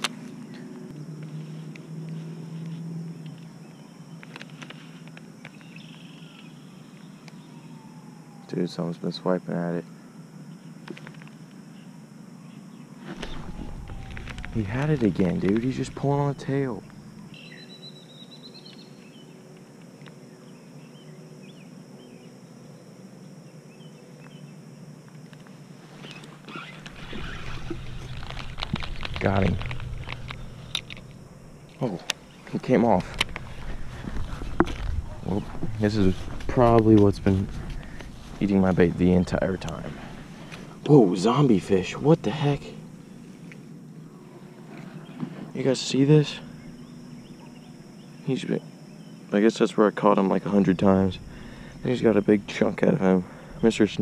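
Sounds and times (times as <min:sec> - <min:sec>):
fishing rod and reel rustling: 0:00.0 - 0:07.4, 0:13.0 - 0:17.5, 0:25.3 - 0:43.7
short high bird or insect call: 0:00.0 - 0:24.8, 0:25.6 - 0:49.6, 0:50.4 - 0:54.0
background hiss: 0:00.0 - 0:54.0
faint bird chirps: 0:02.2 - 0:09.0, 0:11.7 - 0:19.4, 0:41.7 - 0:49.4
low hum: 0:09.8 - 0:22.1, 0:24.3 - 0:48.2, 0:50.3 - 0:54.0.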